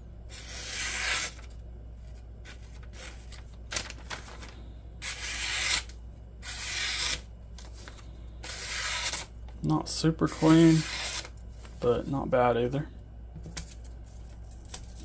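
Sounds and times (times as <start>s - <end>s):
knife slicing through paper: 8.4s - 9.3s.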